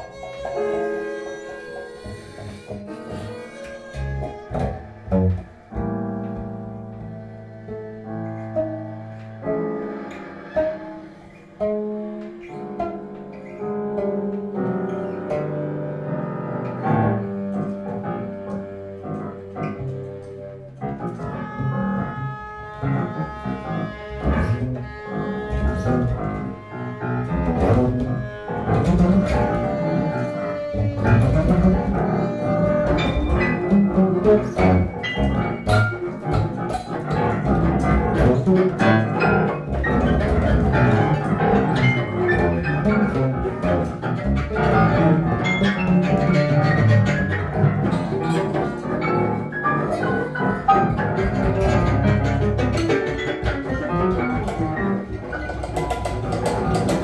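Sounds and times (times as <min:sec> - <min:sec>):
keyboard: 0:00.0 - 0:29.5
bass guitar: 0:00.0 - 0:57.0
cello: 0:00.0 - 0:57.0.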